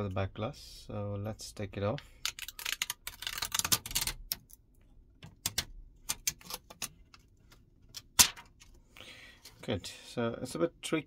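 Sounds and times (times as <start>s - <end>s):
plastic liner peeling crackle: 2.3s - 4.6s.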